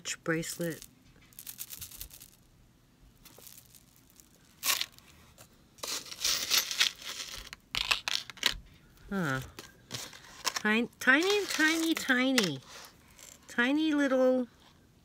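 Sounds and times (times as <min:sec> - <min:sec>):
wrapping crinkling: 0:00.6 - 0:02.4, 0:03.2 - 0:08.6, 0:09.2 - 0:13.3.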